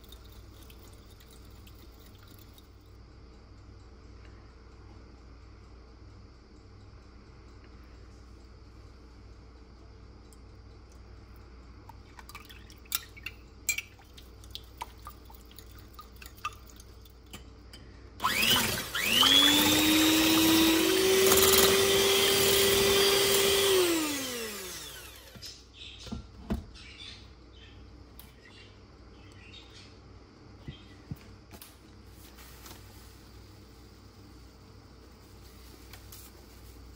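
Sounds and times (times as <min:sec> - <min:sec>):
beaters whisking in glass bowl: 0:00.0 - 0:02.8, 0:12.0 - 0:17.5, 0:18.2 - 0:24.0
electric hand mixer whirring: 0:18.2 - 0:25.5.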